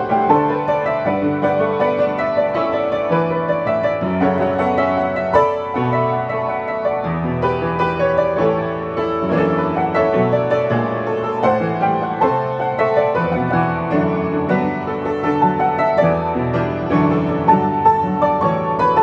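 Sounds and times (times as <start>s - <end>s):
upright piano playing: 0.0s - 19.0s.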